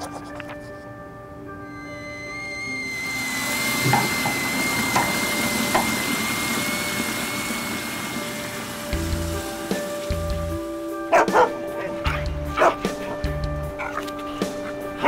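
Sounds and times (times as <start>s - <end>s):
kettle whistle: 1.6s - 11.0s
steam hissing from kettle: 1.7s - 11.1s.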